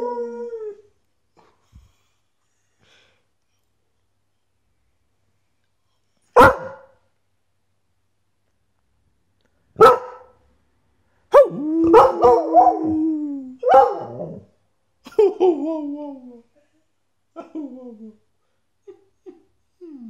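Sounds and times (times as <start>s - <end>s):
dog barking: 6.4s - 7.0s, 9.8s - 10.4s, 11.4s - 12.7s, 13.6s - 14.2s.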